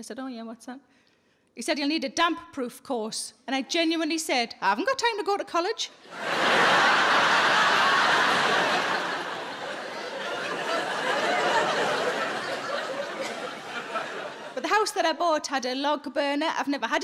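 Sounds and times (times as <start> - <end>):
audience laughing: 6.1 - 14.7.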